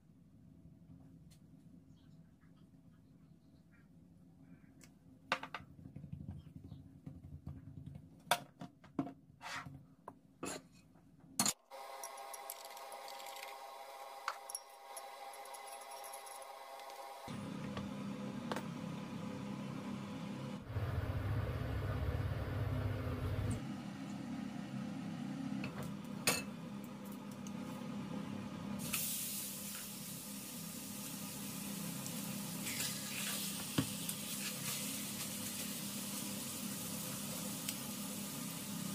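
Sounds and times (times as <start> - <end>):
low hum: 20.6 - 28.6
steak sizzling in a skillet: 28.8 - 38.9.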